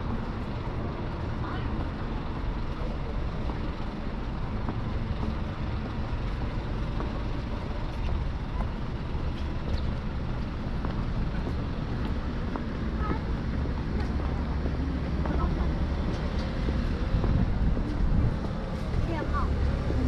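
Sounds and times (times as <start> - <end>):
road noise: 0.0 - 20.0
vehicle engine noise: 0.0 - 20.0.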